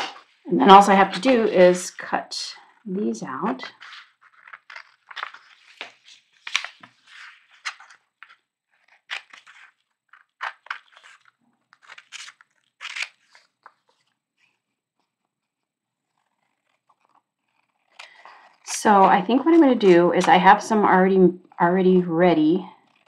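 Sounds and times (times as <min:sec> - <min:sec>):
scissors cutting paper: 0:03.4 - 0:14.1, 0:16.1 - 0:20.6.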